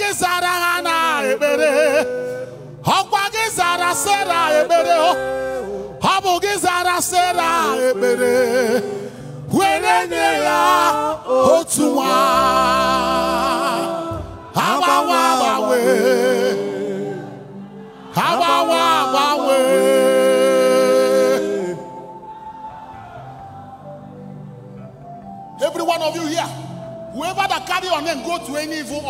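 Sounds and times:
man singing into a microphone: 0.0s - 17.4s.

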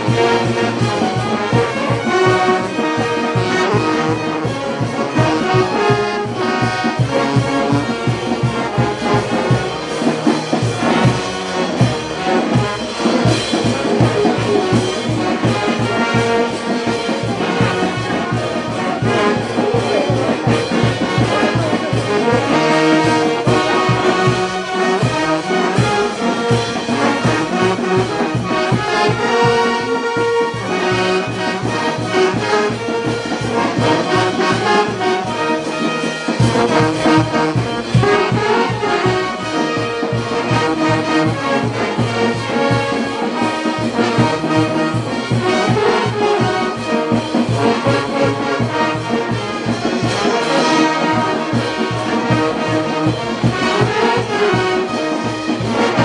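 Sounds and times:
brass band playing: 0.0s - 56.0s
bass drum beat: 5.2s - 24.5s.

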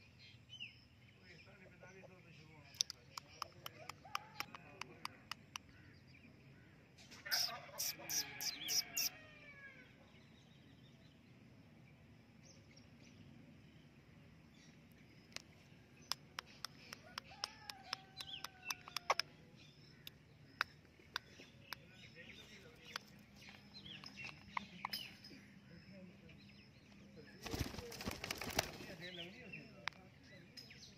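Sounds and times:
sharp clicks: 2.7s - 5.8s, 15.3s - 19.3s, 22.8s - 25.1s.

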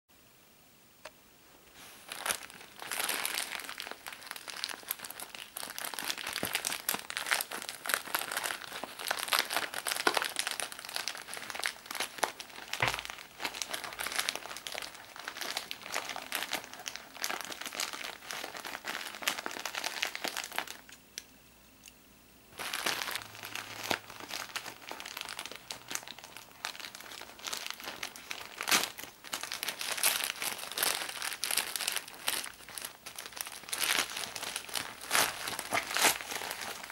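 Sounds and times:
plastic package crinkling: 1.8s - 21.0s, 22.6s - 36.9s.

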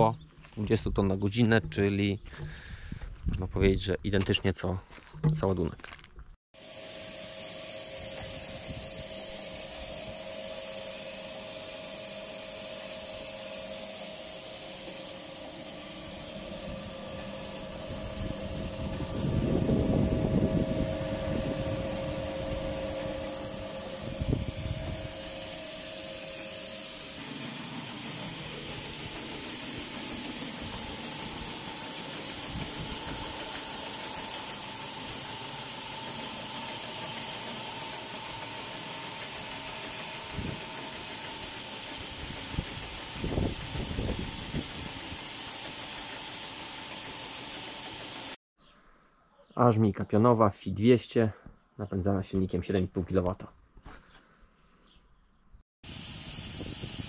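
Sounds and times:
grain hissing through auger: 6.6s - 48.4s, 55.8s - 57.0s
machine whine: 6.6s - 48.4s.

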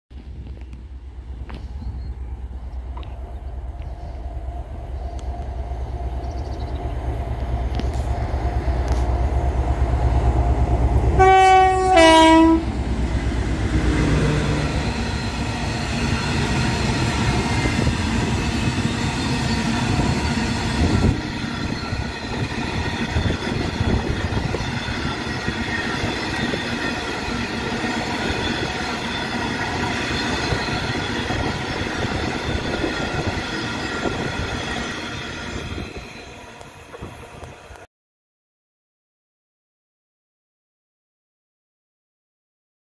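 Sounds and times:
diesel locomotive engine drone: 0.1s - 37.9s
train wheels rumbling on rail: 0.1s - 37.9s
two-tone train horn: 11.2s - 12.7s.

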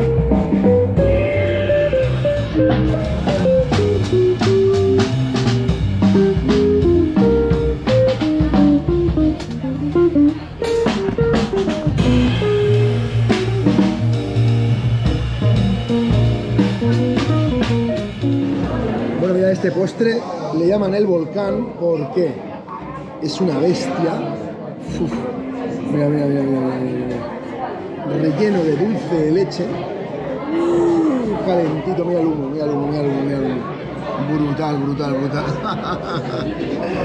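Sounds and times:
electric guitar melody: 0.0s - 19.3s, 24.8s - 27.8s
upright double bass: 0.0s - 19.4s
drum kit: 0.0s - 19.7s.

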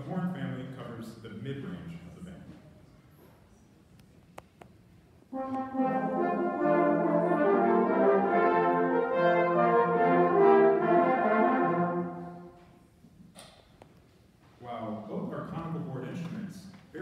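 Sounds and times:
brass band playing held chords: 5.3s - 12.7s.

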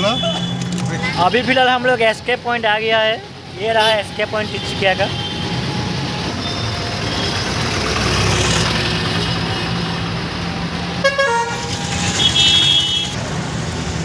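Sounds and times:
vehicle horns tooting: 0.0s - 1.2s, 11.0s - 13.2s
traffic rumble and road noise: 0.0s - 14.0s.

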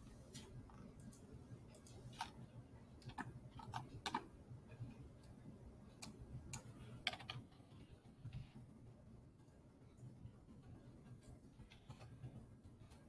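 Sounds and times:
low steady hum: 0.0s - 13.0s
computer keys and mouse clicks: 3.0s - 4.3s, 5.2s - 8.5s.

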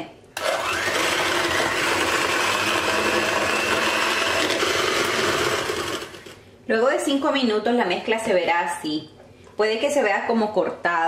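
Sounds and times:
electric hand mixer running: 0.4s - 6.4s.

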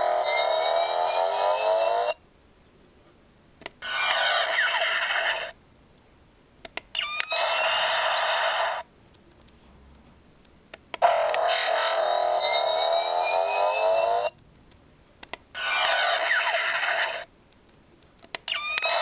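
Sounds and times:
electronic toy power-up sound effects: 0.0s - 2.2s, 3.8s - 5.5s, 7.0s - 8.8s, 11.0s - 14.4s, 15.6s - 17.3s, 18.5s - 19.0s.

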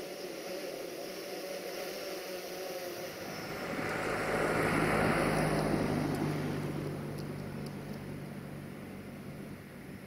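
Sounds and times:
car passing: 3.0s - 10.0s.

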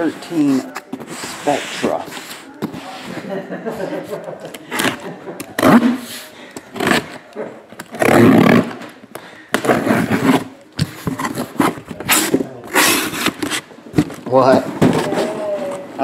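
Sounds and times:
cardboard box tearing: 9.7s - 13.6s.

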